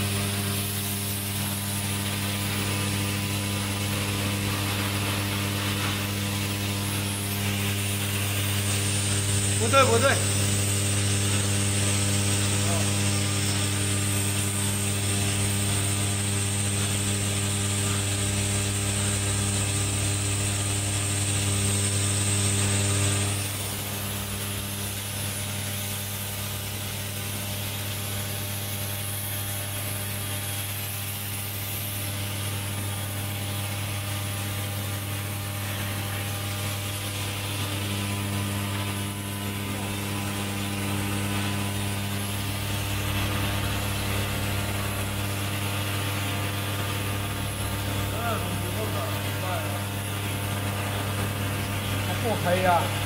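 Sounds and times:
machine electric hum: 0:00.0 - 0:53.0
high whine: 0:35.0 - 0:53.0.

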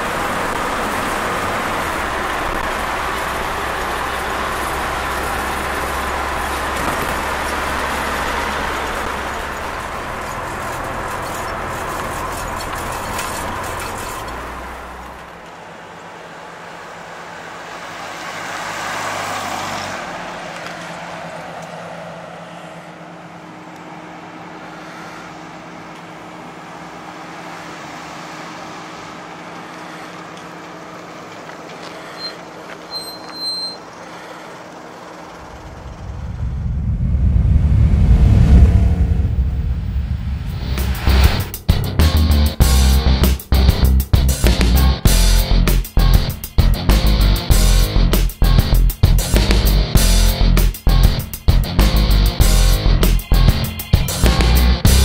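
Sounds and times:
car engine running: 0:00.0 - 0:17.5, 0:33.7 - 0:55.0
road and wind noise: 0:00.0 - 0:55.0.

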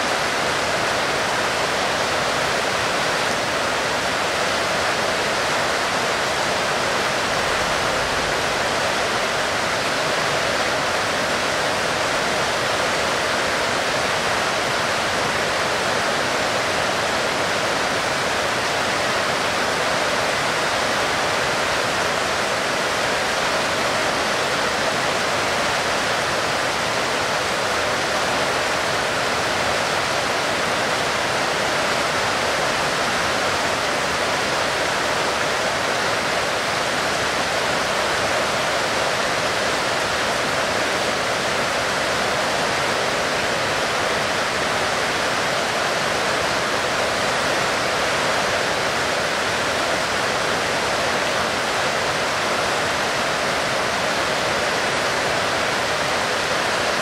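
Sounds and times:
heavy rain falling: 0:00.0 - 0:57.0.

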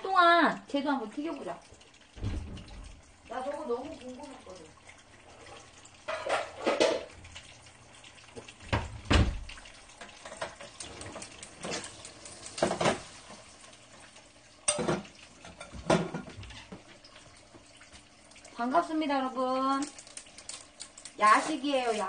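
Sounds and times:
metal pans clattering: 0:06.0 - 0:07.2, 0:10.1 - 0:13.2, 0:14.7 - 0:16.8.

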